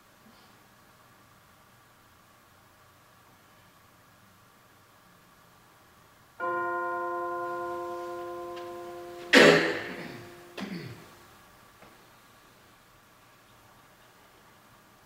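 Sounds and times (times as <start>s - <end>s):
bell ringing: 6.4s - 10.6s
loud noisy clash: 9.1s - 10.8s.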